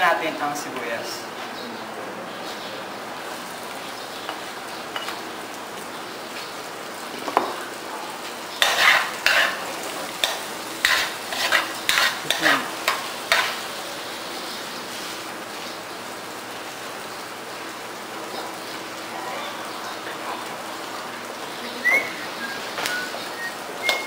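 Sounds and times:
onion and garlic sizzling in oil: 0:02.3 - 0:24.0
metal spatula scraping a wok: 0:08.6 - 0:09.6, 0:10.2 - 0:13.6.

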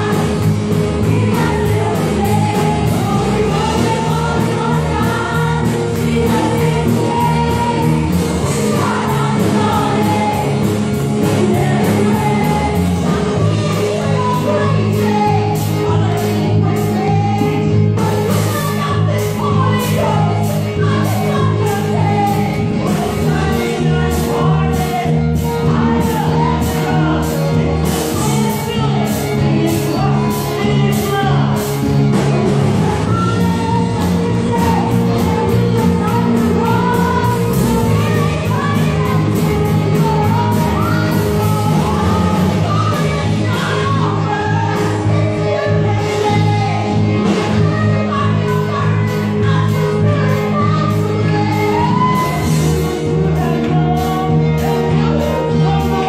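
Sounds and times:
group singing praise song: 0:00.0 - 0:18.5
live band playing: 0:00.0 - 0:56.0.

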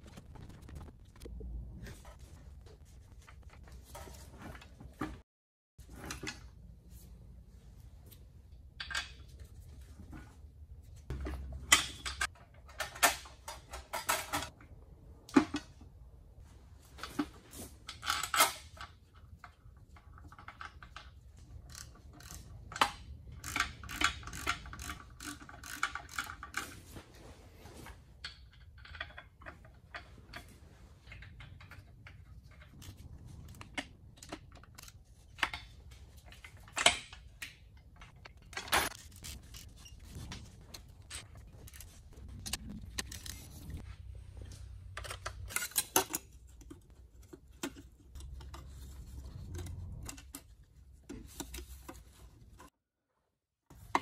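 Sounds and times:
ratchet wrench clicking: 0:21.7 - 0:26.7.

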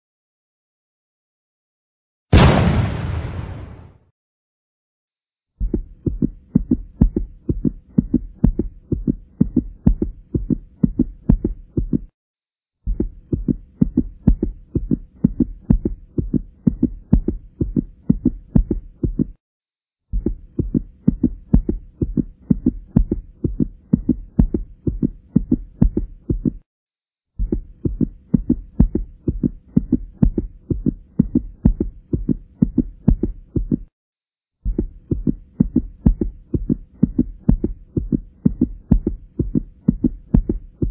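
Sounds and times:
rhythmic low thumping: 0:20.2 - 0:26.6, 0:27.4 - 0:33.9, 0:34.7 - 0:40.9.

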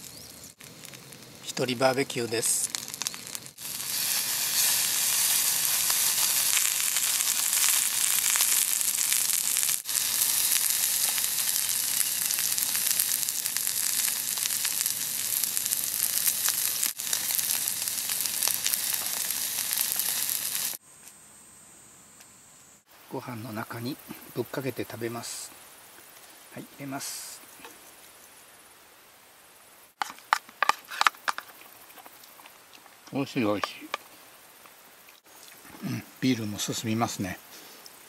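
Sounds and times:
meat and vegetables sizzling in pan: 0:00.0 - 0:20.8.

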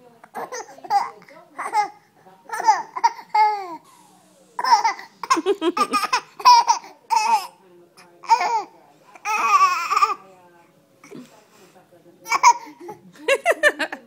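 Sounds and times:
baby giggling and laughing: 0:04.6 - 0:07.5.

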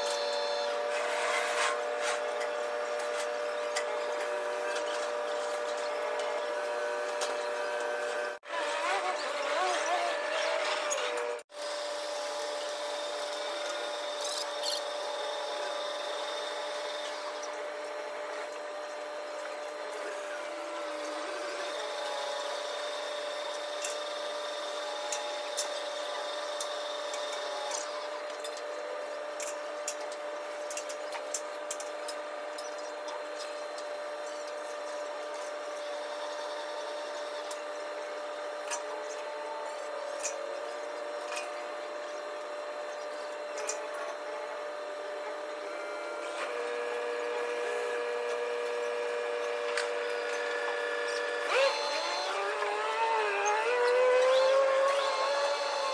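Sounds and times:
machinery whine: 0:00.0 - 0:55.9.

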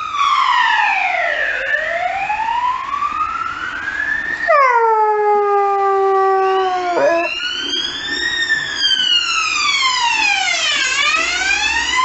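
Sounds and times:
emergency vehicle siren wailing: 0:00.0 - 0:12.0
dog howling: 0:04.5 - 0:07.4.

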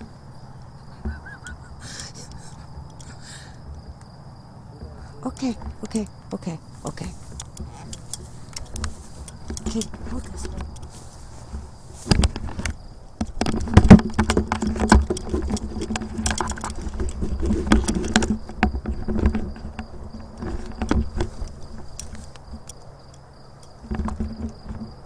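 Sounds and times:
high insect trill: 0:00.0 - 0:25.0
rustling and crackling: 0:00.0 - 0:25.0
dull thumps: 0:07.1 - 0:22.7, 0:23.8 - 0:25.0.

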